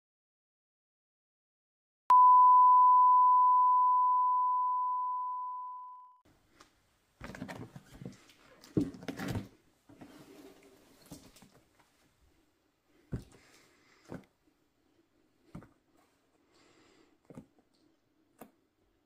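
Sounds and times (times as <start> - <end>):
electronic ding: 2.1 - 6.2.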